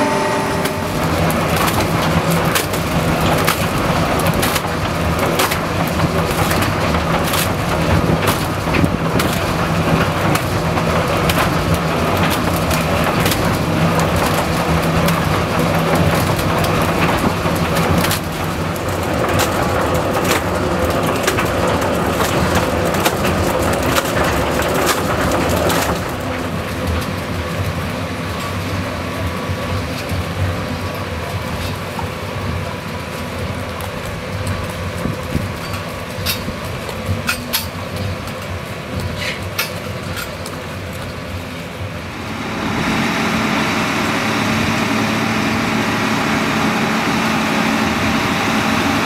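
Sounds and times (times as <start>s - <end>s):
elevator clatter and knocking: 0.0s - 28.8s
tractor engine running: 0.0s - 49.0s.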